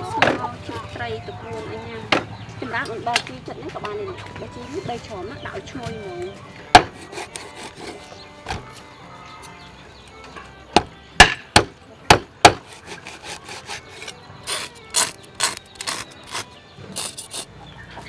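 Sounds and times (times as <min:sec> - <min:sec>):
knife scraping fish scales: 0:07.0 - 0:08.1, 0:12.7 - 0:17.5.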